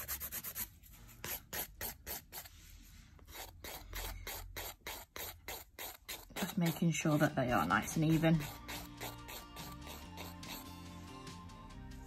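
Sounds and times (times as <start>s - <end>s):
nail file rasping: 0.0s - 2.5s, 3.2s - 10.8s.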